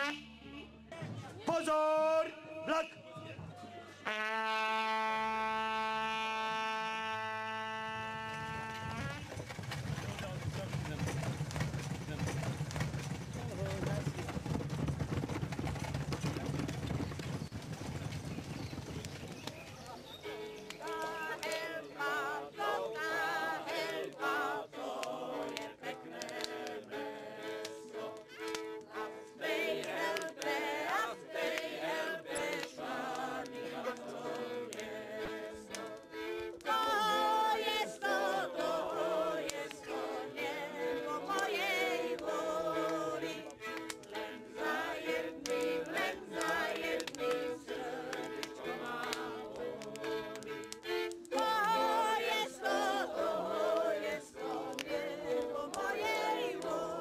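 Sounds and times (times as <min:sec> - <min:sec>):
several voices singing: 0:20.8 - 0:57.0.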